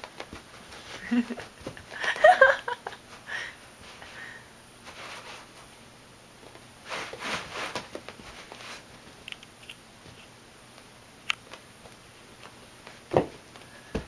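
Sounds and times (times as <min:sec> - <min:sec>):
kitten paws scuffling on carpet: 0:06.4 - 0:09.2.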